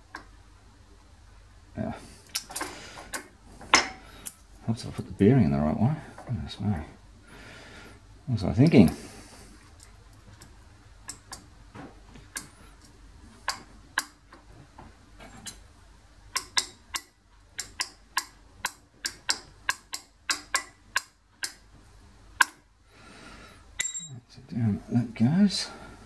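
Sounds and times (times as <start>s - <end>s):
metallic clicks and taps: 12.2s - 14.4s, 16.3s - 21.6s.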